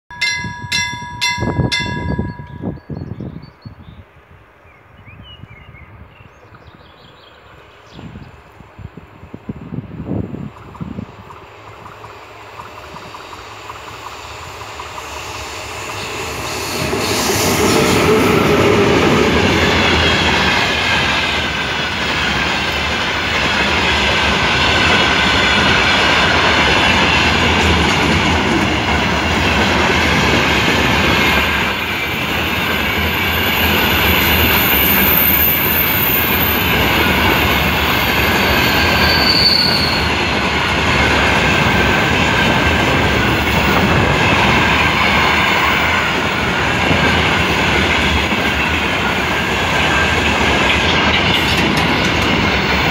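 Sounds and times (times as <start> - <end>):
freight train rumbling on rails: 0.1 - 52.9
high wheel squeal: 15.3 - 19.9, 33.0 - 40.3.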